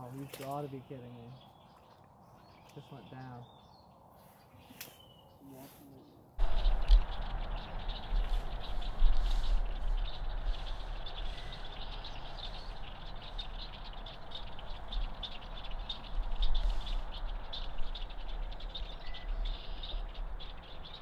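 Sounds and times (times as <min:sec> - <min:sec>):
chorus of high chirps: 0:00.0 - 0:21.0
low rumble: 0:06.4 - 0:21.0.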